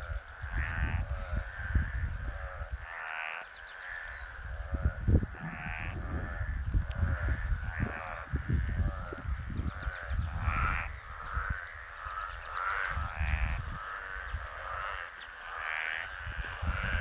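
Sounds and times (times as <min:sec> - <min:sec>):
frogs calling: 0:00.0 - 0:17.0
wind rumbling on microphone: 0:00.0 - 0:17.0.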